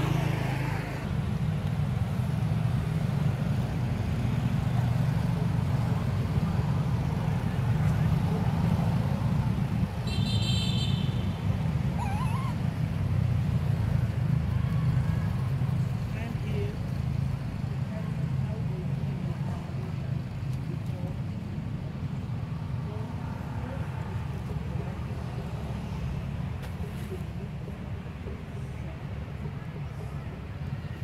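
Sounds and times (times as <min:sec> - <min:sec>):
low outdoor rumble: 0:00.0 - 0:31.0
wavering call: 0:11.9 - 0:12.8.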